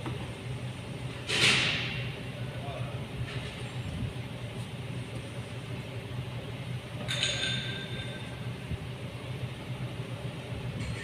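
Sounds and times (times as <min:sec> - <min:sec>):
metallic clink: 0:07.1 - 0:08.3.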